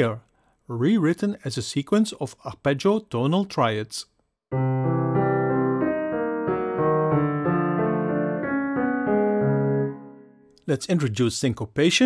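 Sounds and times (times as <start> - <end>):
piano arpeggios: 4.5 - 10.5.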